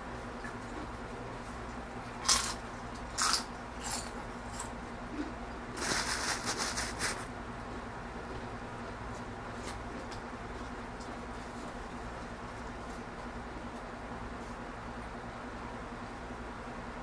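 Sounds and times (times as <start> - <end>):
tortilla chip crunching: 2.0 - 7.1.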